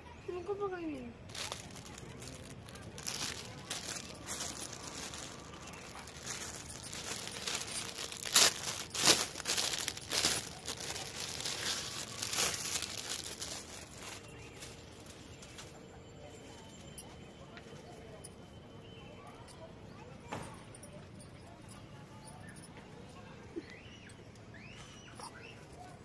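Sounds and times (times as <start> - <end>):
plastic packaging crinkling: 1.2 - 15.7.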